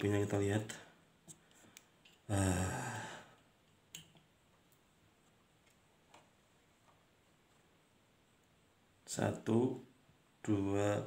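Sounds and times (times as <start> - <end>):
man sighing: 2.3 - 3.4.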